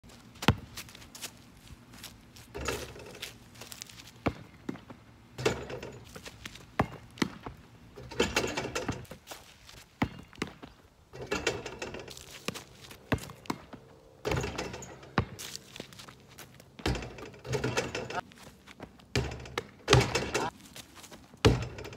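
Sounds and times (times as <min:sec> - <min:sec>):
basketball bouncing: 0:00.4 - 0:00.9, 0:04.2 - 0:06.0, 0:06.7 - 0:09.0, 0:10.0 - 0:12.0, 0:13.0 - 0:15.4, 0:16.8 - 0:18.2, 0:18.8 - 0:20.5, 0:21.4 - 0:21.9
hoop rim and backboard clattering: 0:02.5 - 0:03.4, 0:04.2 - 0:09.2, 0:10.0 - 0:15.5, 0:16.8 - 0:18.2, 0:19.1 - 0:20.5, 0:21.4 - 0:21.9
running footsteps: 0:15.2 - 0:17.0.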